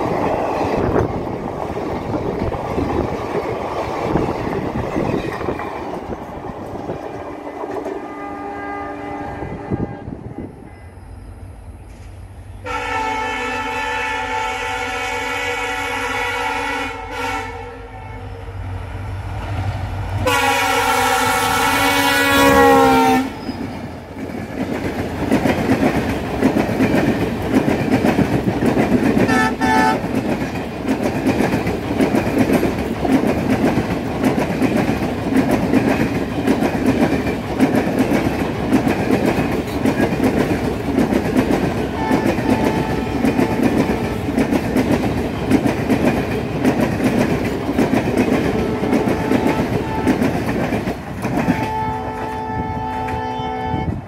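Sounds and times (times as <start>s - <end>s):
train rumbling past: 0.0s - 54.0s
locomotive horn: 8.0s - 11.0s, 12.6s - 18.6s, 20.2s - 23.6s, 29.3s - 30.1s, 41.9s - 43.8s, 48.6s - 50.4s, 51.4s - 54.0s.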